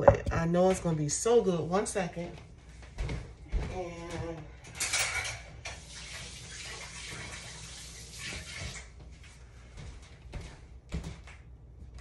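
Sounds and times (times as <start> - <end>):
water running from tap: 5.6 - 8.9.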